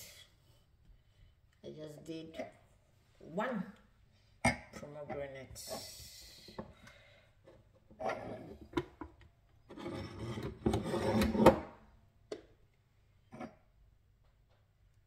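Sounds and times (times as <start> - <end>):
plastic jug scraping against machine: 9.7 - 11.7.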